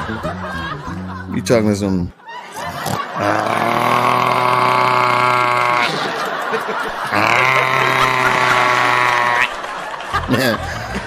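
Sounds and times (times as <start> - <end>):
man imitating snoring: 2.8 - 6.1, 7.1 - 9.5.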